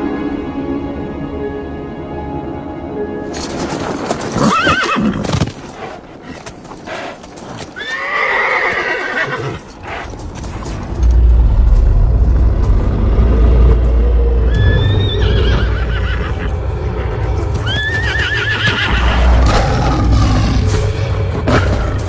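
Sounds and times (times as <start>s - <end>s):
horse whinnying: 3.7s - 10.1s, 14.5s - 16.5s, 17.5s - 20.0s
deep low rumble: 10.2s - 17.5s.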